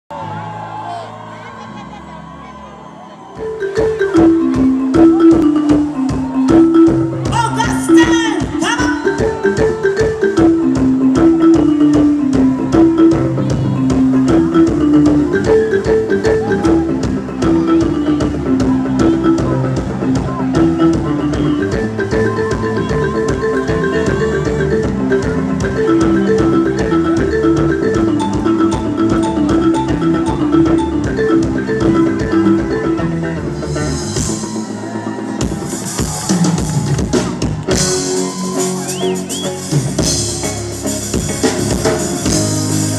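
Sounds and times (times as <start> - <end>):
mallet-like melodic line: 2.8 - 42.9
drum kit steady beat: 3.4 - 42.9
drum kit with cymbals: 24.8 - 42.9.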